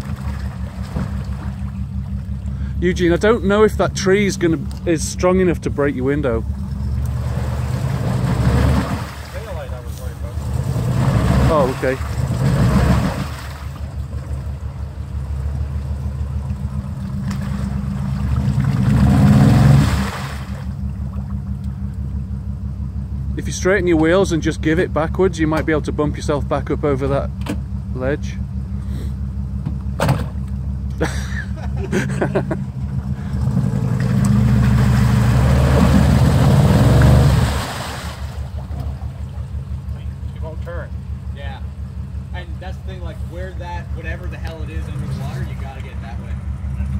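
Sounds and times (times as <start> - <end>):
tyres churning mud and water: 0.0 - 6.4, 7.0 - 21.6, 33.1 - 40.6, 42.4 - 46.9
car engine revving: 0.0 - 46.9.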